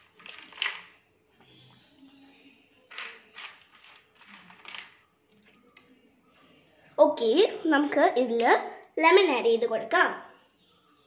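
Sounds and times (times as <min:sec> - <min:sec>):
nuts and raisins rustling and clicking: 0:00.0 - 0:01.0, 0:02.9 - 0:05.8.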